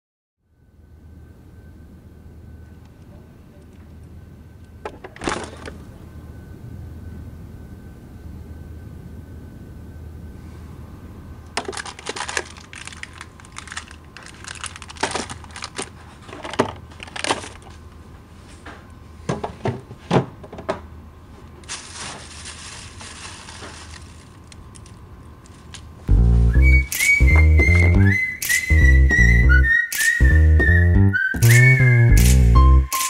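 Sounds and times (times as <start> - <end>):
refrigerator hum: 0.6 - 33.0
plastic bags crinkling: 11.6 - 17.8, 21.6 - 26.0.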